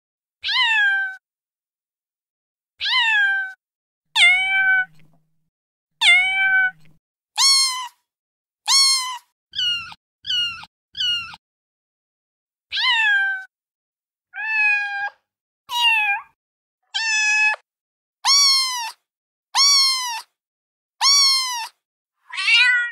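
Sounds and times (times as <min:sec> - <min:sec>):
high-pitched kitten meows: 0:00.4 - 0:01.2, 0:02.8 - 0:03.6, 0:04.2 - 0:05.1, 0:06.0 - 0:11.4, 0:12.7 - 0:13.5, 0:14.3 - 0:20.4, 0:21.0 - 0:22.9.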